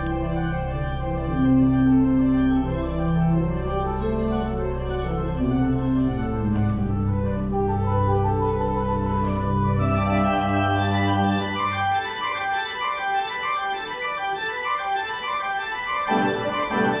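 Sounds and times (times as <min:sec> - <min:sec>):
deep organ pedal bass notes: 0:00.0 - 0:17.0
pipe organ chords: 0:00.0 - 0:17.0.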